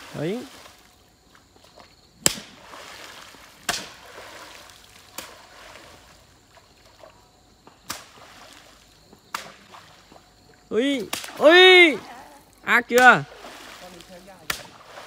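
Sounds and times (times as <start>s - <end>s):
water splashing and trickling: 0.0s - 15.0s
slaps on water: 2.2s - 2.6s, 3.6s - 4.1s, 5.0s - 5.5s, 7.6s - 8.2s, 9.3s - 9.8s, 10.9s - 11.8s, 12.9s - 15.0s.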